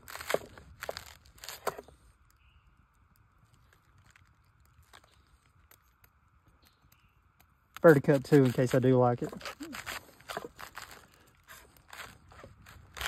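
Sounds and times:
knife crunching through cabbage: 0:00.0 - 0:02.1, 0:07.8 - 0:13.0.

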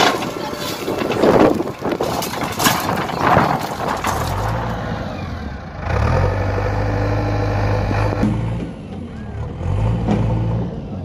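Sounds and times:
knocks and clatter: 0:00.0 - 0:04.9
diesel engine running: 0:00.0 - 0:11.0.

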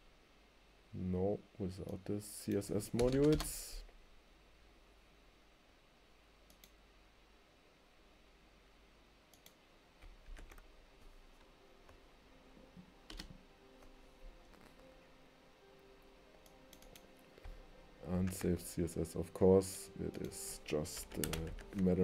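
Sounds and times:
keyboard and mouse clicks: 0:01.9 - 0:03.5, 0:09.3 - 0:11.1, 0:13.1 - 0:13.4, 0:16.4 - 0:17.6, 0:18.2 - 0:18.6, 0:20.2 - 0:22.0.

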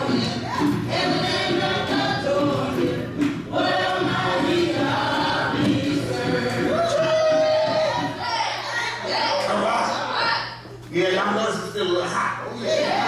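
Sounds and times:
gospel choir singing with music: 0:00.0 - 0:09.0.

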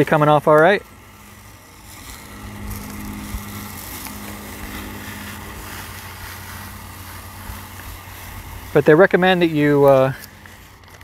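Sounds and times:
paper sticker peeling off: 0:00.0 - 0:11.0
steady engine-like hum: 0:00.0 - 0:11.0.

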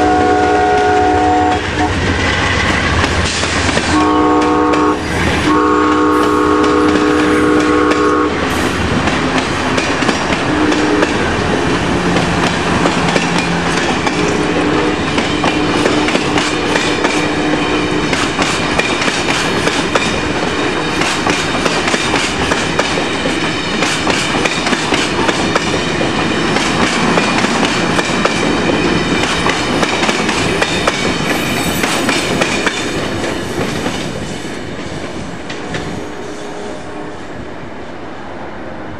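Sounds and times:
train horn: 0:00.0 - 0:02.1, 0:03.9 - 0:08.8, 0:10.4 - 0:11.4, 0:14.2 - 0:18.2, 0:35.7 - 0:37.4
train rumble: 0:00.0 - 0:38.9
wheels clacking over rail joints: 0:01.8 - 0:36.0.

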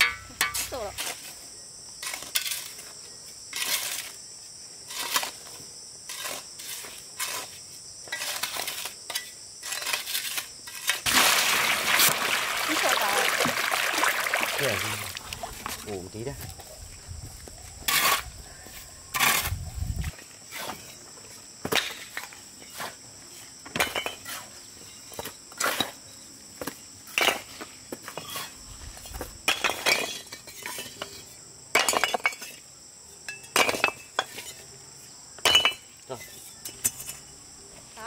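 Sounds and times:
high insect drone: 0:00.0 - 0:21.6.

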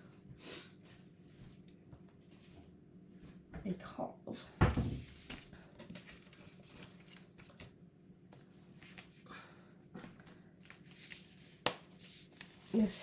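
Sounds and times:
paper rustling: 0:05.0 - 0:07.8, 0:10.6 - 0:13.0.

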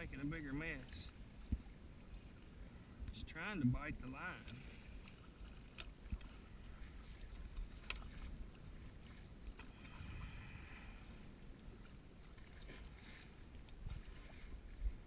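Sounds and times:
water moving around boat: 0:00.0 - 0:15.0
wind rumble on microphone: 0:05.4 - 0:15.0.

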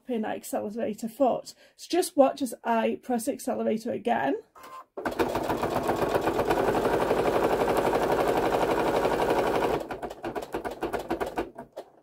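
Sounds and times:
sewing machine stitching: 0:05.0 - 0:12.0.

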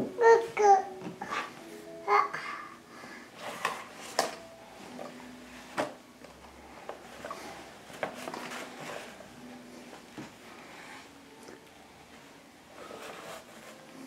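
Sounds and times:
cloth bag rustling: 0:07.0 - 0:11.2.

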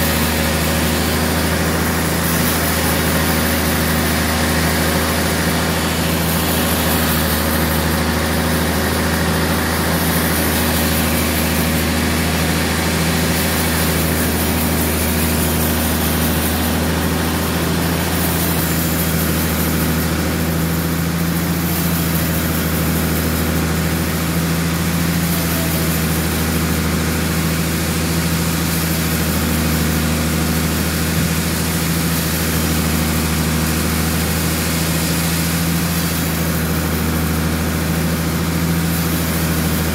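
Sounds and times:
deep motor hum: 0:00.0 - 0:21.5
saw blade cutting log: 0:00.0 - 0:39.9.

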